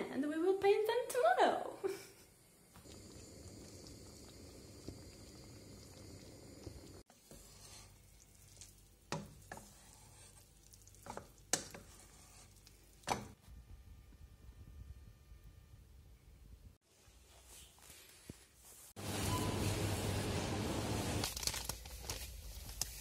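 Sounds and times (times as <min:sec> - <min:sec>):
low noise from cooking pot: 0:02.5 - 0:15.8
wooden spoon stirring rice: 0:07.1 - 0:13.1.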